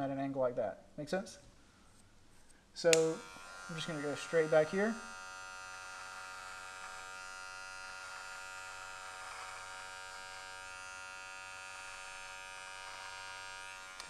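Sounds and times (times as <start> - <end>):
hair clipper buzzing: 2.8 - 14.0.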